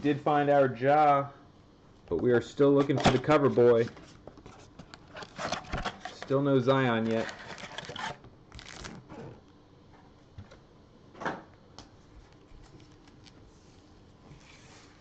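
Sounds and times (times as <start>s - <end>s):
foil packs rustling and clicking: 2.8s - 9.4s
foil pack crinkle: 6.9s - 9.4s.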